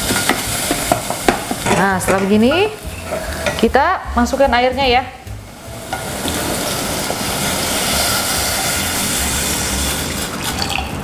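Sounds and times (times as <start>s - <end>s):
water pouring into saucepan: 5.8s - 11.0s.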